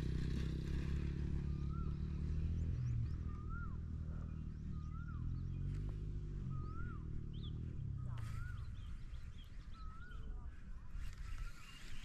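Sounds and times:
bird whistled call: 0:03.3 - 0:03.8, 0:06.5 - 0:07.5.

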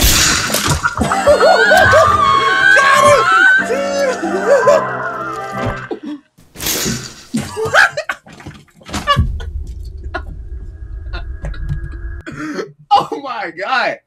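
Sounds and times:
scream: 0:01.0 - 0:05.9
low drone: 0:09.4 - 0:12.2.

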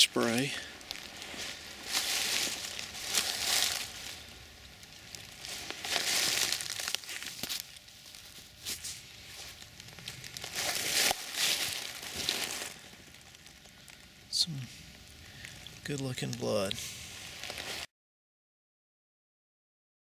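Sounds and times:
footsteps crunching dry leaves: 0:00.0 - 0:13.4, 0:16.5 - 0:17.9.

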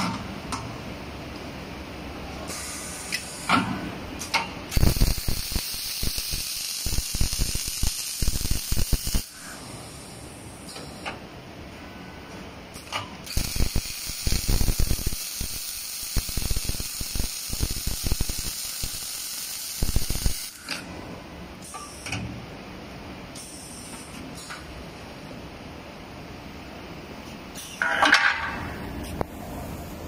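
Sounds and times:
arc welding hiss and crackling: 0:02.5 - 0:03.5, 0:04.7 - 0:11.0, 0:13.2 - 0:20.8.

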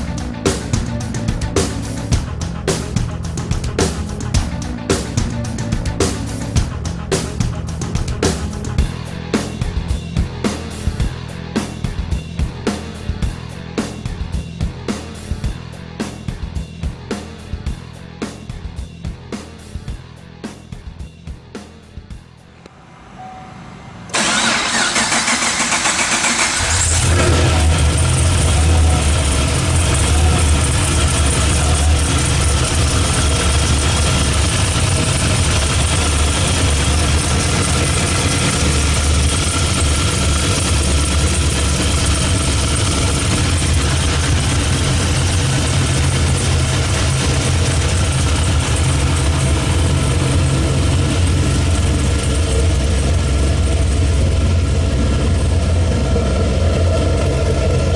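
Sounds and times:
car engine idling: 0:22.5 - 0:57.9
starter cranking: 0:24.2 - 0:53.3.

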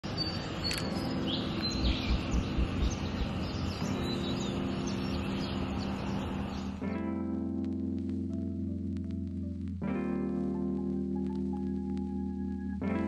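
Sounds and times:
distant city noise: 0:00.0 - 0:06.8
small birds chirping: 0:00.0 - 0:06.8.

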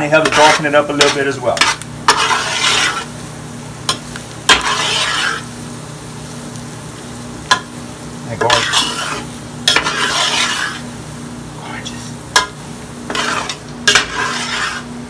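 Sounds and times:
low sizzle: 0:00.0 - 0:15.0
metal spoon scraping a pot: 0:00.2 - 0:03.1, 0:04.5 - 0:05.4, 0:08.4 - 0:10.9, 0:13.1 - 0:14.9.

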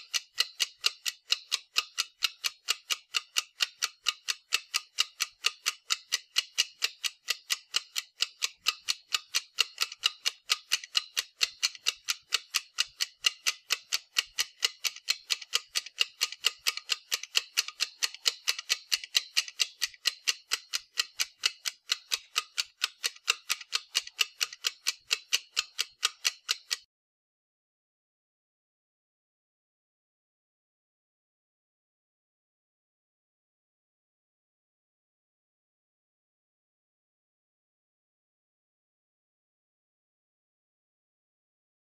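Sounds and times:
clock ticking: 0:00.0 - 0:26.9.

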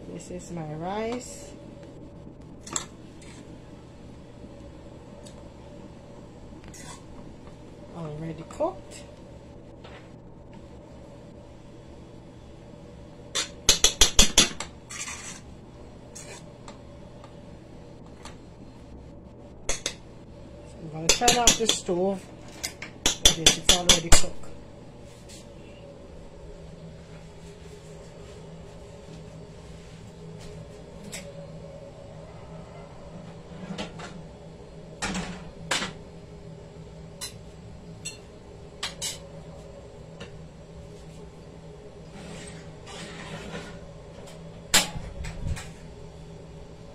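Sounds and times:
steady low hum: 0:00.0 - 0:46.9
spoon scraping through rice: 0:14.9 - 0:15.4.

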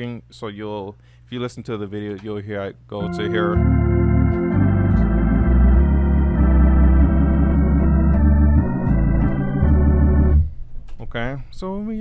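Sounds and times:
organ playing gospel chords: 0:03.0 - 0:10.5.

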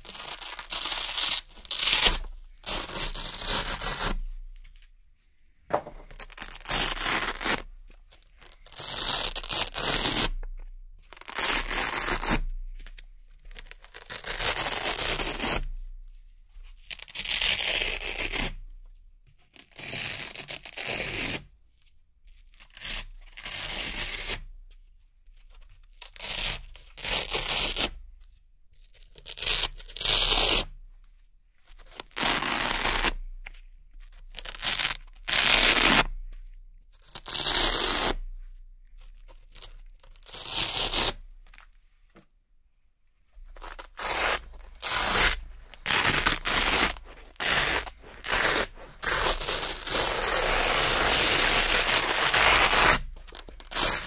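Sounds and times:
hook-and-loop strips ripping: 0:00.0 - 0:04.2, 0:31.8 - 0:33.2, 0:34.1 - 0:36.1, 0:43.4 - 0:54.0.

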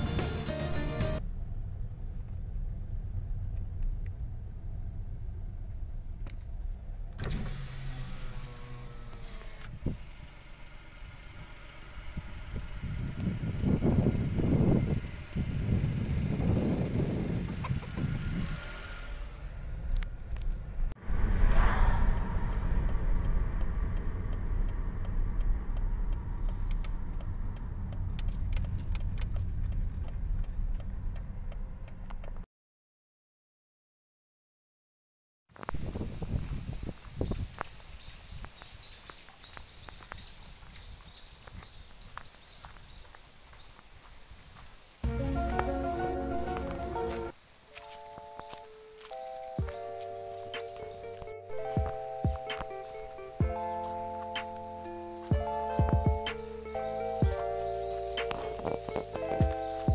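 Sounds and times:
car engine and road rumble: 0:00.0 - 0:32.4, 0:35.6 - 0:59.9
outside air noise: 0:01.2 - 0:32.4, 0:35.5 - 0:59.9
electric window running down: 0:07.2 - 0:15.1
light ticks and rattles: 0:22.1 - 0:32.4.

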